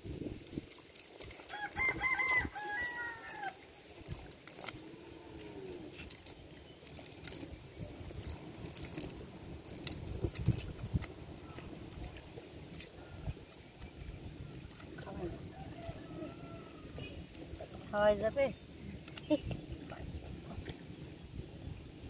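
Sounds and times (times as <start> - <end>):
cast net rustling on wet mud: 0.2 - 20.9
rooster crowing: 1.5 - 3.6, 15.3 - 17.2.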